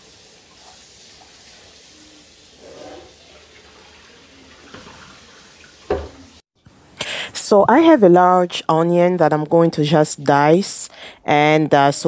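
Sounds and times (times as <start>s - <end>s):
kitchen faucet running into sink: 0.0s - 6.4s.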